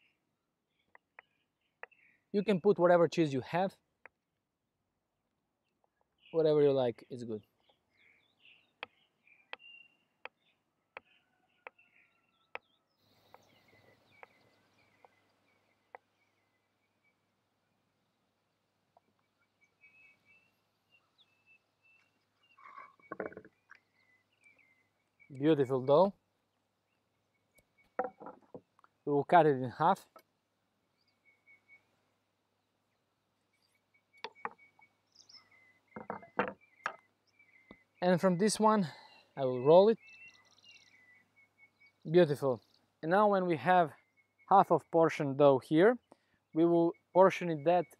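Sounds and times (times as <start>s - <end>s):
faint birdsong: 0.0s - 47.9s
dull knocks on wooden table: 28.0s - 28.6s, 36.0s - 37.0s
faint high chirp: 33.6s - 42.7s.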